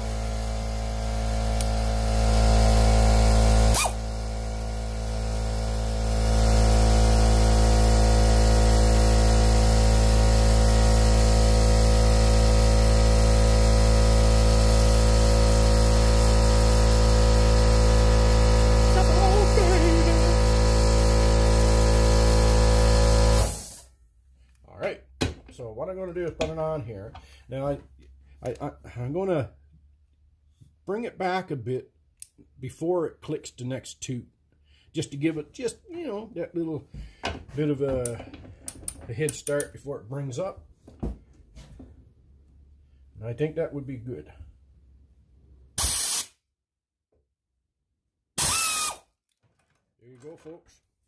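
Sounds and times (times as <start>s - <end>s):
air compressor running: 0.0s - 24.0s, 36.9s - 39.0s, 45.8s - 46.3s, 48.4s - 49.0s.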